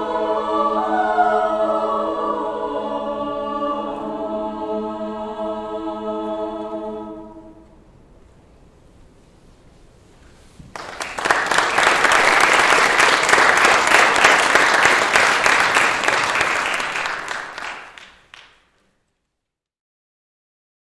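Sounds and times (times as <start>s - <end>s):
audience applauding: 10.7s - 18.6s.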